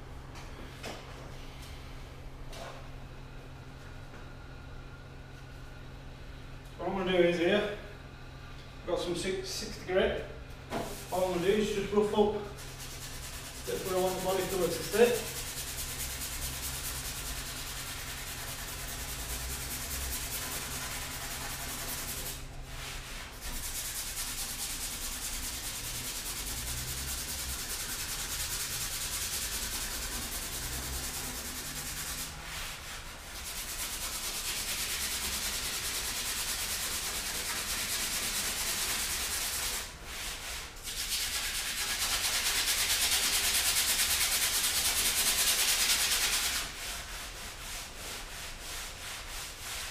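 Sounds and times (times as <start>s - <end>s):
sandpaper scuffing metal: 12.6s - 49.9s.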